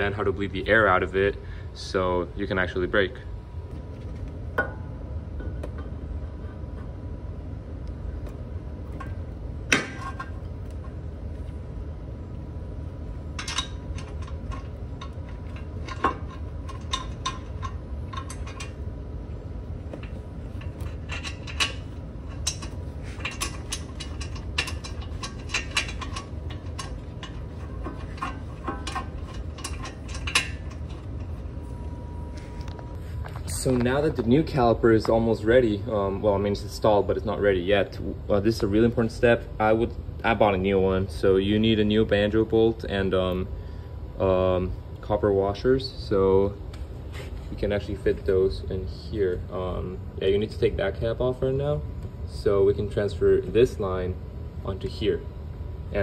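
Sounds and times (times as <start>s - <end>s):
low background rumble: 0.0s - 56.0s
metal caliper clinking: 13.3s - 18.8s, 19.9s - 31.8s.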